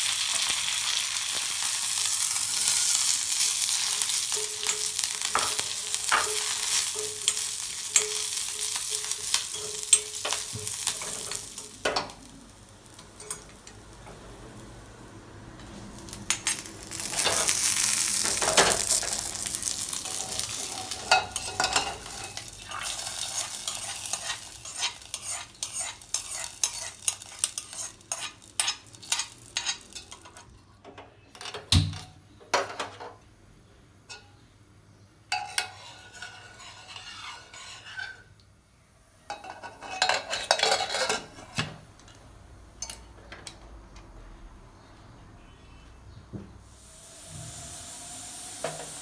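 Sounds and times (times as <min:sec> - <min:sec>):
hot oil sizzling: 0:00.0 - 0:30.5, 0:35.3 - 0:38.4, 0:46.6 - 0:49.0
ladle scraping and clinking in pot: 0:19.9 - 0:30.6, 0:35.3 - 0:38.3, 0:39.3 - 0:41.7.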